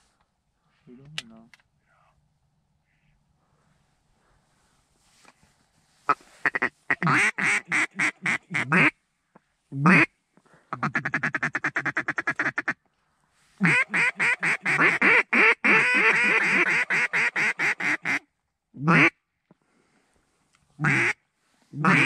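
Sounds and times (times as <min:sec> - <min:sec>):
duck call quacks: 0:06.1 - 0:09.0, 0:09.8 - 0:10.1, 0:10.7 - 0:12.8, 0:13.6 - 0:18.2, 0:18.8 - 0:19.1, 0:20.8 - 0:21.2, 0:21.8 - 0:22.0
fast duck call chatter: 0:13.6 - 0:18.0.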